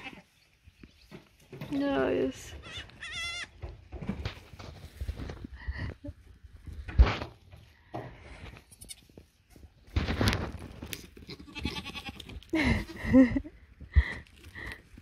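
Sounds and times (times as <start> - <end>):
goat bleating: 0.0 - 0.3, 2.6 - 3.6, 8.6 - 9.1, 11.2 - 13.1.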